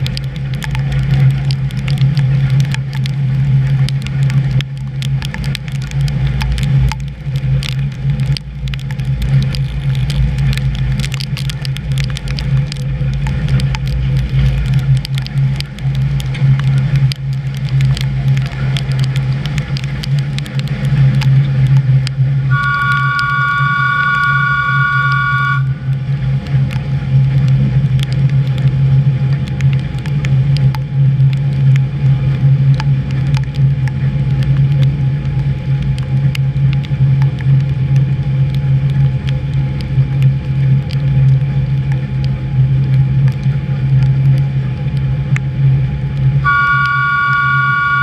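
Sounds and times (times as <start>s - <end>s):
electric train running hum: 22.4s - 26.3s, 46.4s - 48.0s
high two-note whine: 22.5s - 25.9s, 46.4s - 48.0s.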